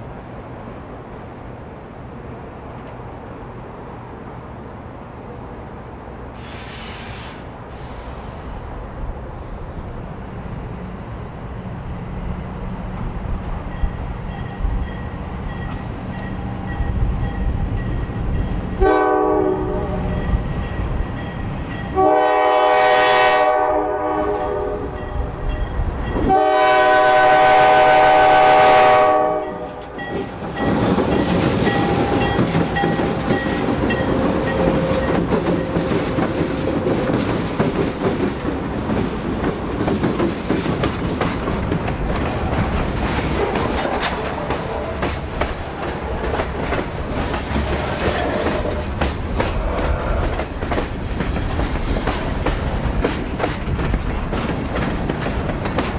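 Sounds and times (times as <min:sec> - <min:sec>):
locomotive horn blasts: 0:18.8 - 0:20.3, 0:21.9 - 0:25.1, 0:26.2 - 0:29.9
wheels clattering over rail joints: 0:29.6 - 0:55.9.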